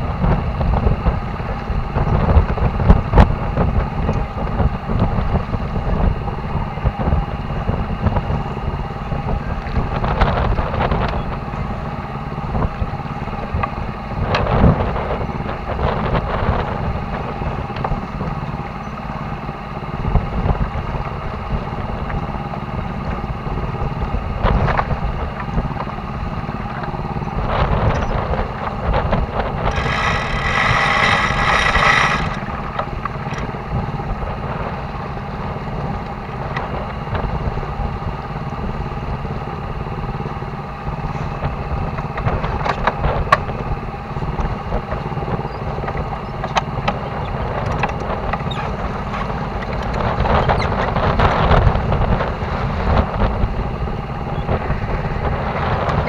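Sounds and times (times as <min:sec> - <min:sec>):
boat engine running: 0:00.0 - 0:56.0
wind on microphone: 0:00.0 - 0:56.0
loud rigging rattle: 0:29.3 - 0:33.6.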